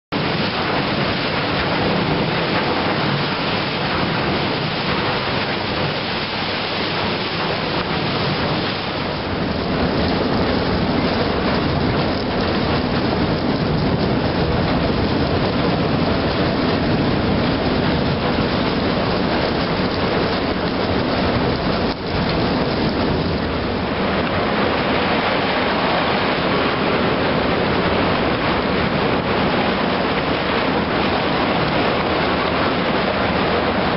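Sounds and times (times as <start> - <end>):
rushing water: 0.1 - 33.9.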